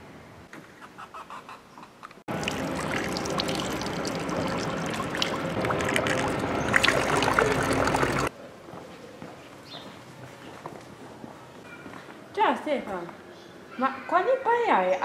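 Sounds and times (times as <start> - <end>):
water splashing onto stone: 2.3 - 8.3.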